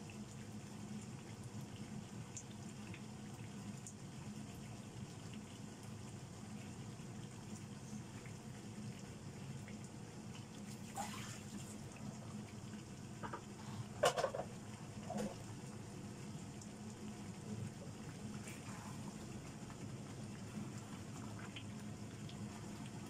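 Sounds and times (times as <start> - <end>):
curry bubbling in a frying pan: 0.0 - 23.0.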